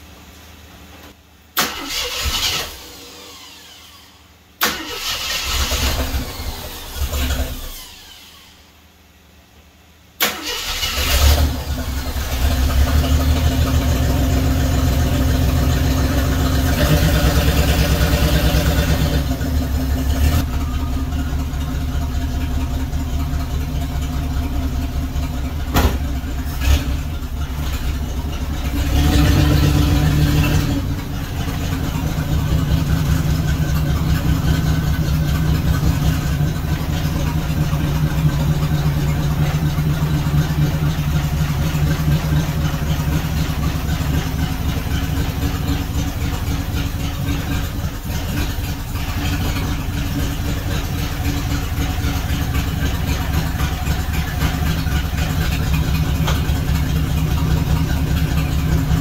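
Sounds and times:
car engine cranking: 1.6s - 4.0s, 4.6s - 8.4s, 10.2s - 59.0s
car engine running and revving: 11.0s - 59.0s.

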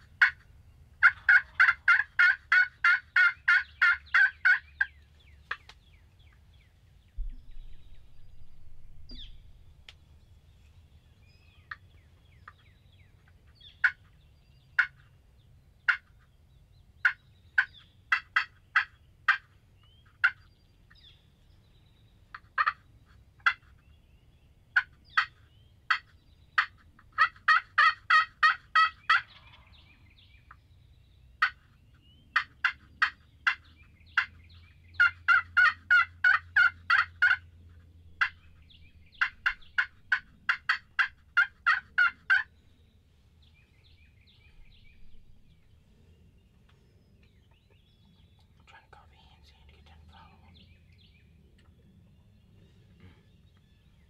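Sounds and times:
wild turkeys calling: 0.0s - 6.5s, 11.2s - 14.2s, 14.8s - 15.1s, 15.8s - 16.2s, 17.0s - 21.1s, 22.2s - 23.9s, 24.7s - 30.6s, 31.4s - 46.0s.

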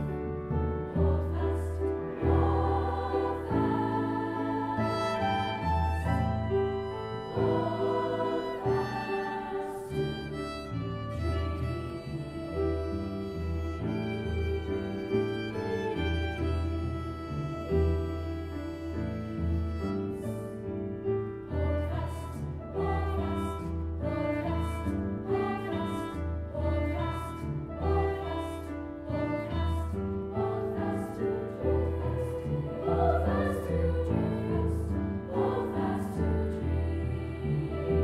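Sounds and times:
violin: 0.0s - 38.0s
choir singing in parts: 0.8s - 17.5s, 21.5s - 38.0s.

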